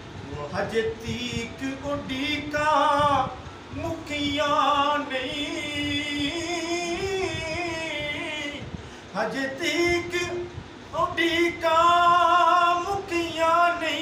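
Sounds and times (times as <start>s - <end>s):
man singing unaccompanied: 0.2s - 14.0s.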